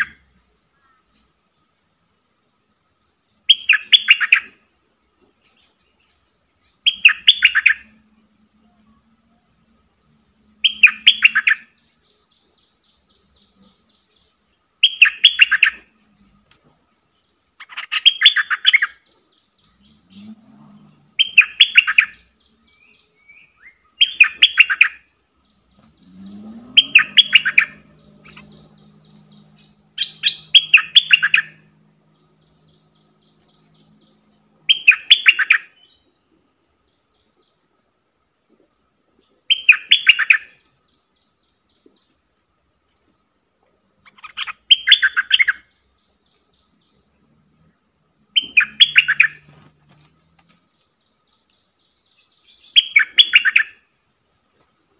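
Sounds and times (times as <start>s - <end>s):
bird singing bubbling phrases: 3.1s - 4.6s, 6.0s - 16.4s, 17.1s - 36.1s, 39.3s - 41.9s, 44.0s - 49.5s, 51.1s - 53.8s.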